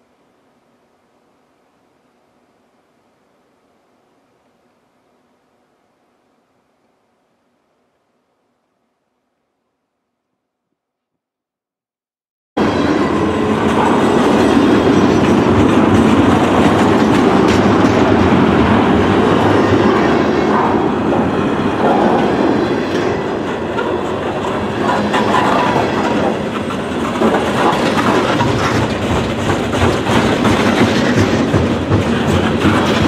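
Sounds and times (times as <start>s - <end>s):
train wheels rumbling on rails: 12.6s - 33.0s.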